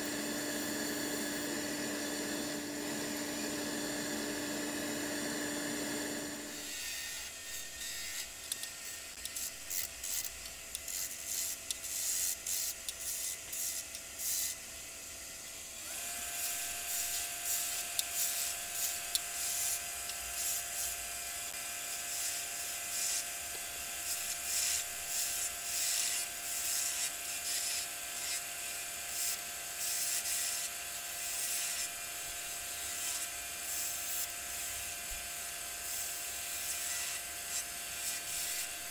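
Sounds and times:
tool scraping spinning wood: 0:00.0 - 0:06.9
wood lathe whine: 0:00.0 - 0:08.7, 0:13.7 - 0:38.9.

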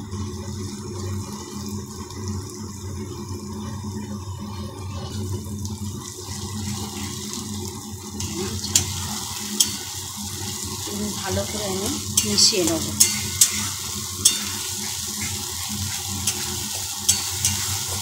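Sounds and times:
paste sizzling in hot oil: 0:05.0 - 0:18.0
metal spatula clinking on pan: 0:09.6 - 0:09.9, 0:12.2 - 0:15.0, 0:16.2 - 0:18.0.

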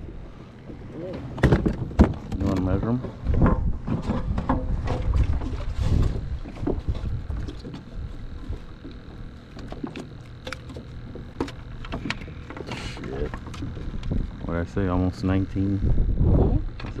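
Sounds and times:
wind rumble on microphone: 0:01.8 - 0:08.8, 0:13.6 - 0:17.0.

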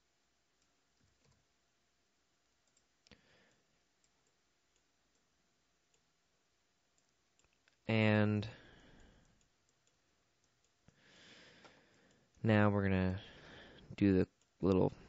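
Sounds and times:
faint computer mouse clicks: 0:02.6 - 0:05.2.

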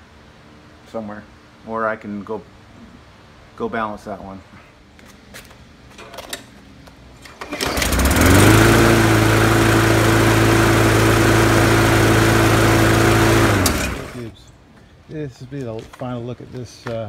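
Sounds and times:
lawn mower engine starting and running: 0:07.2 - 0:14.4.

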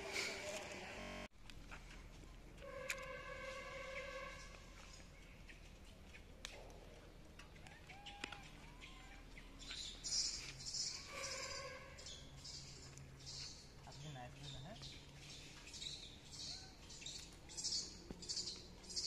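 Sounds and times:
birdsong: 0:02.7 - 0:19.0
high bird chirps: 0:07.9 - 0:19.0.

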